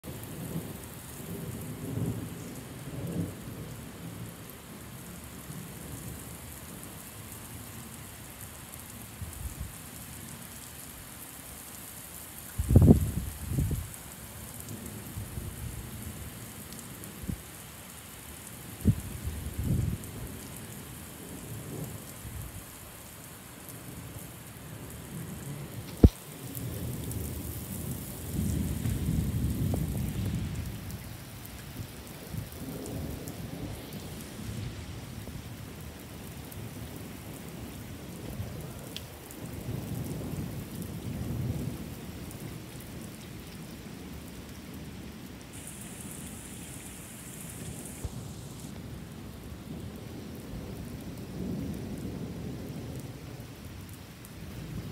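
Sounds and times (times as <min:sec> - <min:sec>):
rain hissing on pavement: 0:00.0 - 0:54.9
thunder rumbling: 0:25.7 - 0:31.2.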